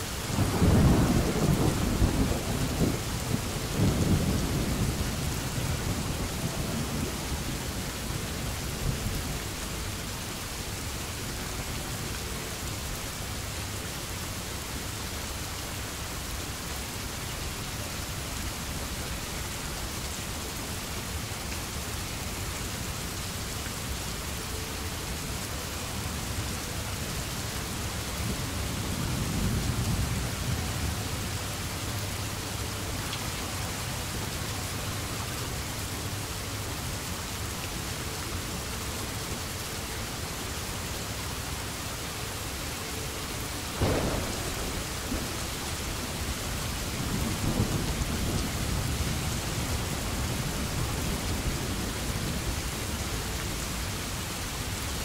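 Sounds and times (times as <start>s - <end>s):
steady rain falling: 0.0s - 55.0s
thunder rumbling: 0.3s - 9.1s, 43.7s - 52.6s.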